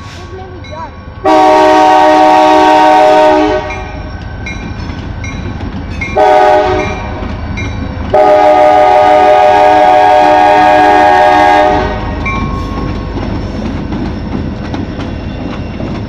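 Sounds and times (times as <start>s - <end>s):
locomotive engine rumble: 0.0s - 16.0s
locomotive air horn: 1.2s - 3.9s, 6.2s - 7.2s, 8.1s - 12.2s.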